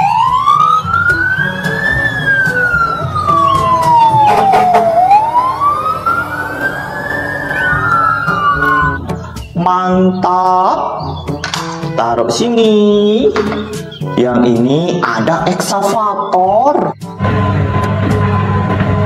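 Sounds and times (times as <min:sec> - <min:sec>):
fire engine siren wailing: 0:00.0 - 0:09.2.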